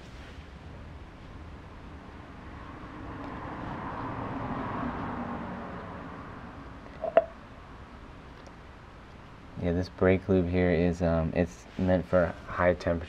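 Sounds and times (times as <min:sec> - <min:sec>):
vehicle passing by: 0:01.9 - 0:07.8.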